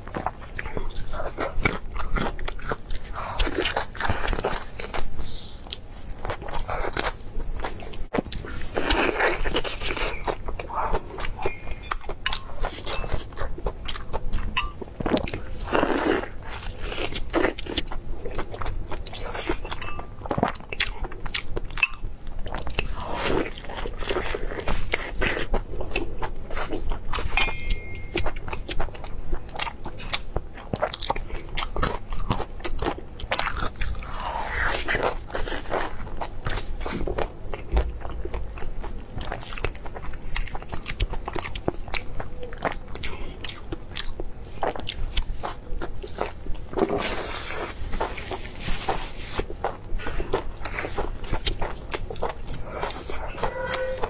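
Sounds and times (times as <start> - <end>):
chewing meat: 0.0 - 53.6.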